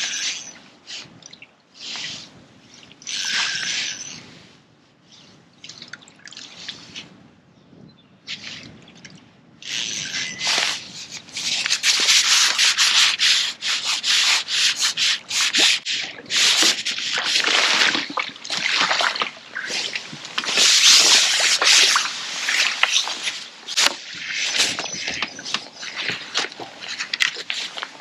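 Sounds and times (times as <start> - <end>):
loud rubbing and scraping: 9.7 - 28.0.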